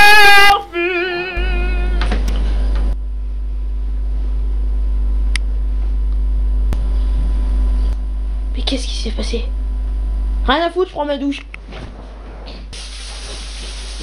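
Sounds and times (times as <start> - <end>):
child singing with vibrato: 0.0 - 2.2
low electrical hum: 0.0 - 14.0.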